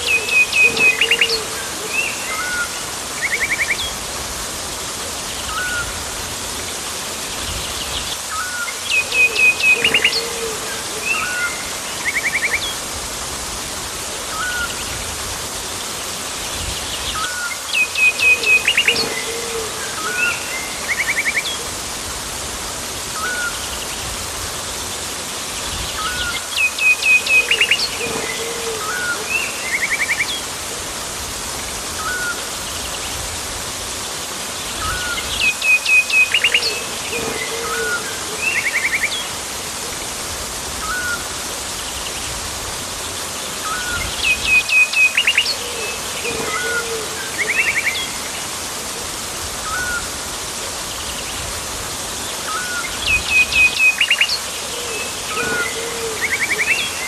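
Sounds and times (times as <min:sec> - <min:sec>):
birds calling: 0:00.0 - 0:04.1, 0:40.7 - 0:57.0
rushing water hiss: 0:00.0 - 0:57.0.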